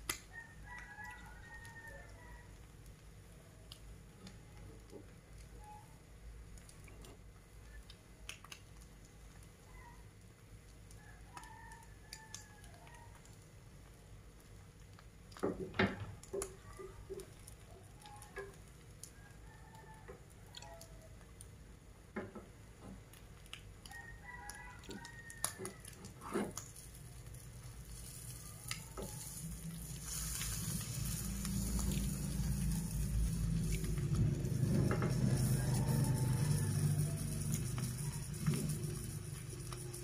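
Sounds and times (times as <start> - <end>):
low rumble with hiss: 25.6 - 40.0
food sizzling in a pan: 26.5 - 40.0.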